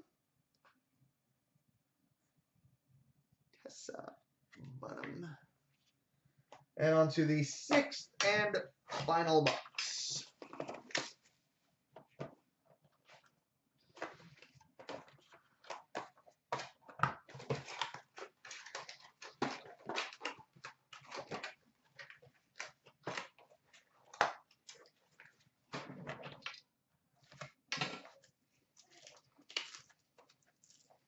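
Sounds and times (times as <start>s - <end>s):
cardboard and wrapper crinkling: 12.0s - 26.6s, 27.2s - 31.0s.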